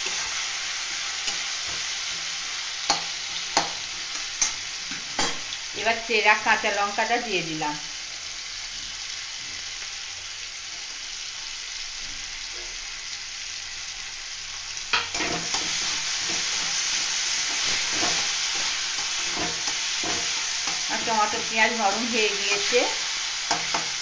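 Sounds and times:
vegetables sizzling in hot oil: 0:00.0 - 0:24.0
metal spatula scraping pan: 0:15.0 - 0:21.1.

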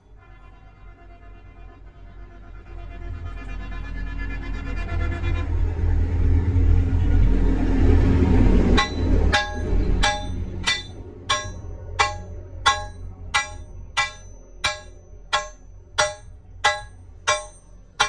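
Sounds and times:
low rumble: 0:01.2 - 0:18.0
hammer striking metal nut: 0:08.8 - 0:17.7.

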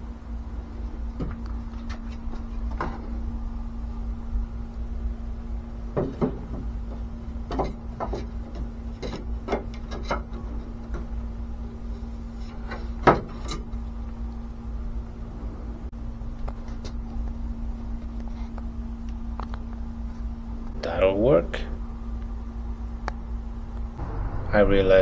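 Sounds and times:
steady low hum: 0:00.0 - 0:25.0
wooden knocks and clacks: 0:06.0 - 0:06.7, 0:07.5 - 0:11.1.

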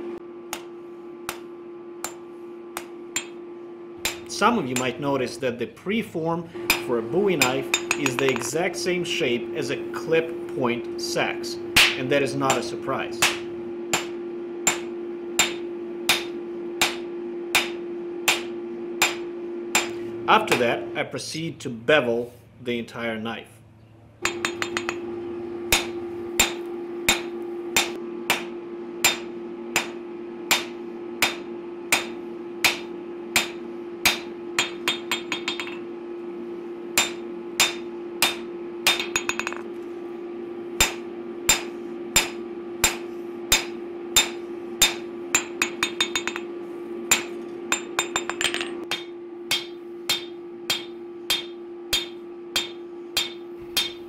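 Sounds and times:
shop hum: 0:00.0 - 0:54.0
hammer striking hot steel on anvil: 0:00.5 - 0:05.1, 0:06.6 - 0:08.7, 0:11.7 - 0:20.7, 0:24.2 - 0:35.9, 0:36.9 - 0:39.7, 0:40.8 - 0:54.0.

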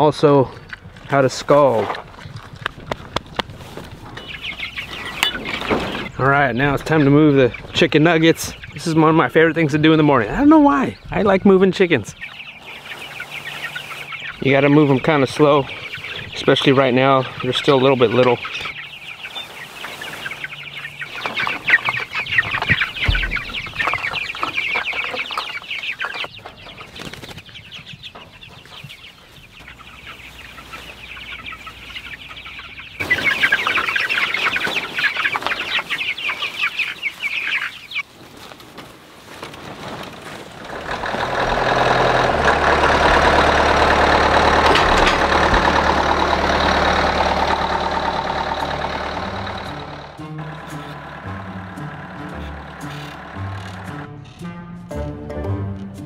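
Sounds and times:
chicks peeping: 0:00.0 - 0:54.1
tractor diesel engine running: 0:12.6 - 0:26.4, 0:40.5 - 0:54.2.

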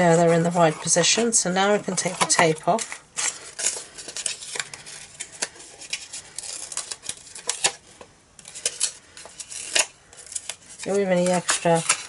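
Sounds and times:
peeling adhesive tape backing: 0:02.1 - 0:07.8, 0:08.4 - 0:12.0
paper crackles and ticks: 0:08.4 - 0:12.0.

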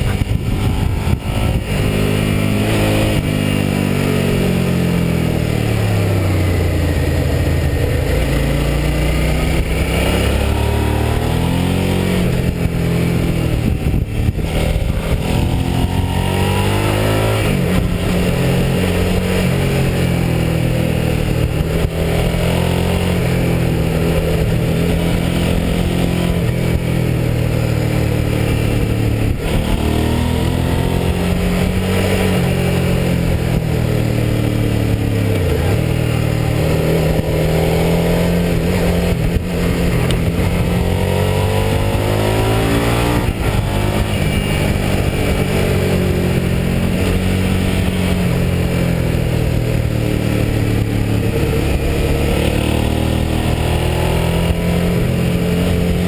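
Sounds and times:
wind rushing: 0:00.0 - 0:20.6
motorcycle engine revving: 0:00.0 - 0:56.0.

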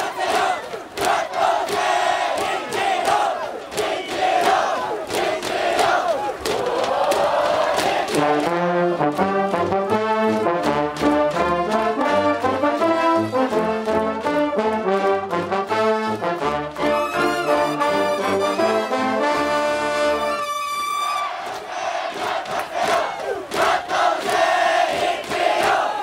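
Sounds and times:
brass band playing fast tune: 0:08.0 - 0:21.4.

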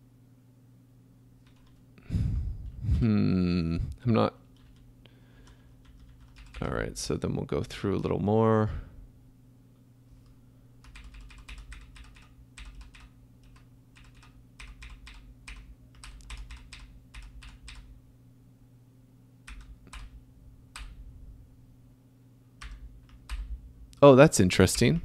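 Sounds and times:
faint low hum: 0:00.0 - 0:25.0
keyboard keystrokes: 0:01.4 - 0:01.8, 0:04.6 - 0:06.6, 0:10.8 - 0:17.9, 0:19.5 - 0:20.2, 0:22.6 - 0:23.5.

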